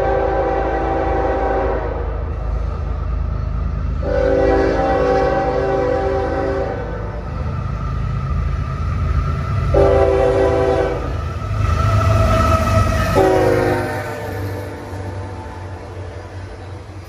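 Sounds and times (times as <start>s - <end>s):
train air horn blasts: 0.0s - 2.2s, 4.0s - 7.2s, 9.7s - 11.2s, 12.3s - 15.4s
locomotive engine rumble: 0.0s - 17.0s.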